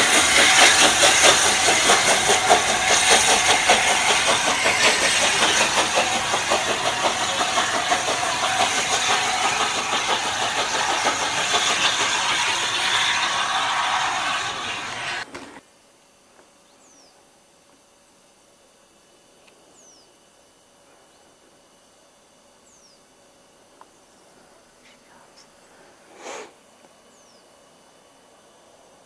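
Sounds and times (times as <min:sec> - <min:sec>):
steam locomotive exhaust beats: 0:00.0 - 0:15.3.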